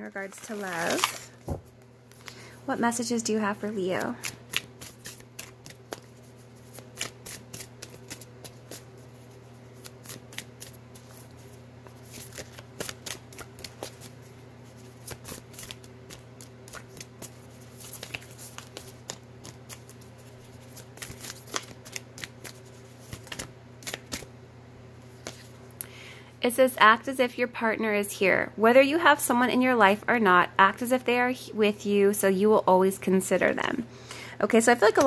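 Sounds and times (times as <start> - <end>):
steady low hum: 0.0 - 35.0
cards being shuffled: 0.2 - 2.4, 3.8 - 24.3, 25.1 - 25.6.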